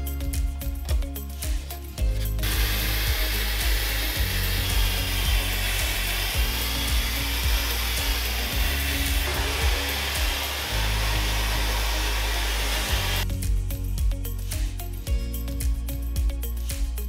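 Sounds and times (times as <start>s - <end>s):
background music with pulsing beat: 0.0s - 17.0s
air sander hissing and whining: 2.1s - 13.2s.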